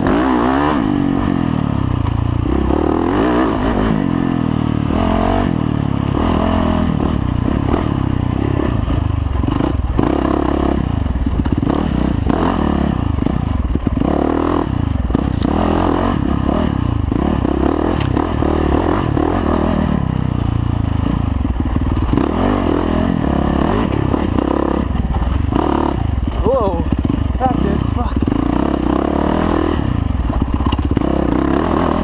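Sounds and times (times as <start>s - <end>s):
dirt bike engine revving: 0.0s - 32.0s
rocks and brush hitting bike: 11.2s - 12.0s, 15.1s - 15.6s, 17.8s - 18.4s, 30.2s - 31.0s.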